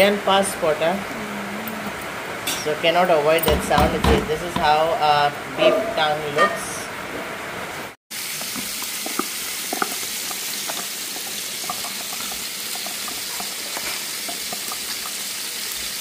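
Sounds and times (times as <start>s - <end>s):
pot boiling with pops: 8.1s - 16.0s.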